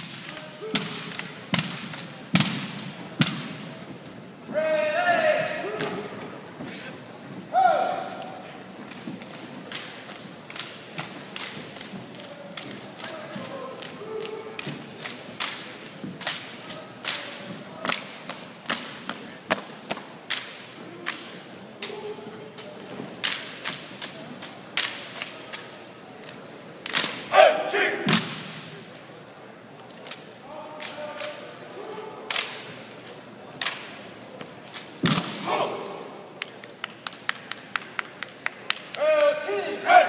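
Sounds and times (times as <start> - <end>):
rifles slapped and struck: 0.0 - 3.7, 8.9 - 19.6, 20.3 - 25.8, 26.8 - 27.3, 32.3 - 35.5
person shouting: 7.5 - 8.2.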